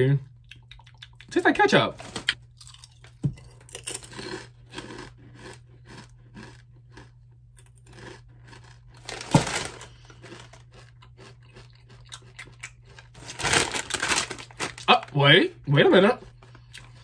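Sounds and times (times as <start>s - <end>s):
potato chip crunching: 2.0s - 15.1s.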